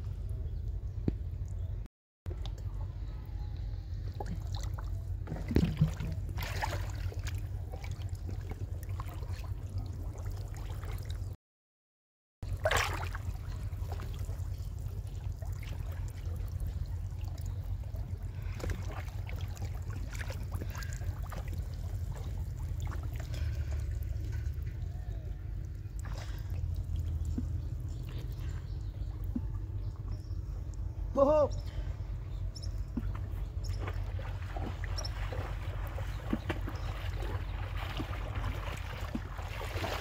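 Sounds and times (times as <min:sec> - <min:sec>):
water splashing and trickling: 0:03.8 - 0:11.4, 0:12.4 - 0:31.9, 0:32.5 - 0:40.0
low rumble: 0:12.4 - 0:40.0.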